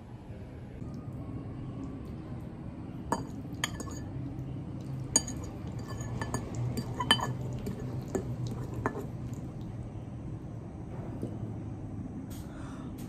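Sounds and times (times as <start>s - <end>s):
low steady hum: 0.0s - 13.0s
fork clinking and scraping ceramic bowl: 3.1s - 4.1s, 4.9s - 9.4s.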